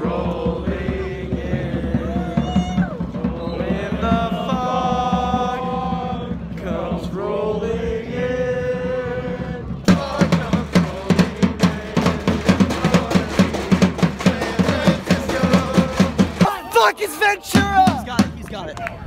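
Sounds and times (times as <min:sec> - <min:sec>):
drum beating fast rhythm: 0:00.0 - 0:06.3, 0:09.9 - 0:18.7
crowd singing a chant: 0:00.0 - 0:16.5.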